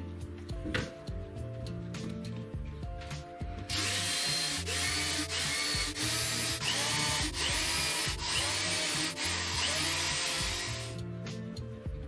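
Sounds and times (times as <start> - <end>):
background music: 0.0 - 12.0
cordless drill whirring into wood: 3.7 - 11.0.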